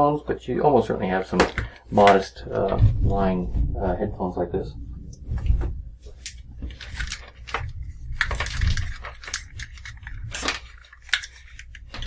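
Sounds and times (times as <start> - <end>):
hard plastic clicking and clattering: 1.4 - 2.2.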